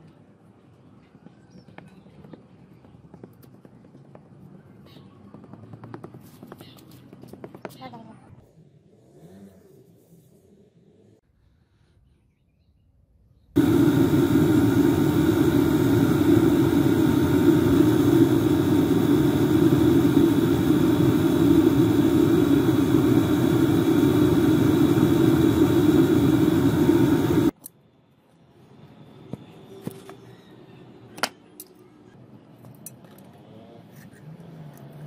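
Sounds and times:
machine running: 13.6s - 27.5s.

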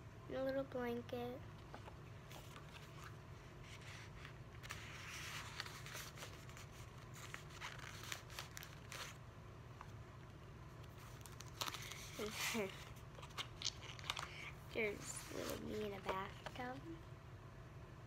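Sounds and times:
low room hum: 0.0s - 18.0s
photo prints rustling: 1.5s - 9.2s, 10.7s - 17.0s.

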